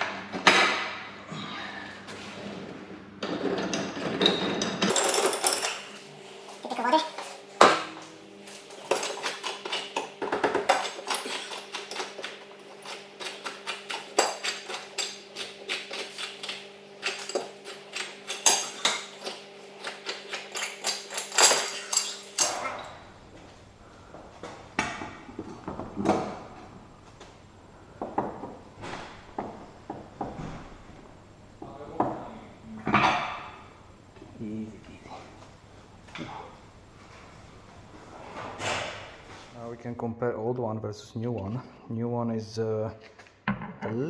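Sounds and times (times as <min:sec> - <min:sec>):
steady low hum: 0:00.0 - 0:44.0
metal tools clinking: 0:04.3 - 0:06.0, 0:19.8 - 0:22.9.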